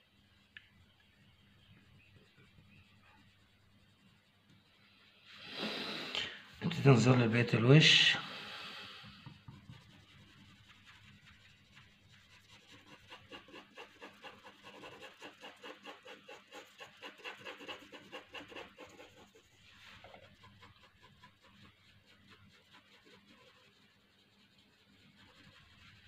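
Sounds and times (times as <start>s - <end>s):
pencil scratching on paper: 9.0s - 26.0s.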